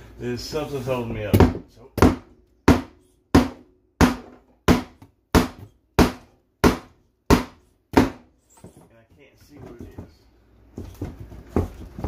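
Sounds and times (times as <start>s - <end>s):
hammer striking wooden cabinet: 1.2s - 8.3s.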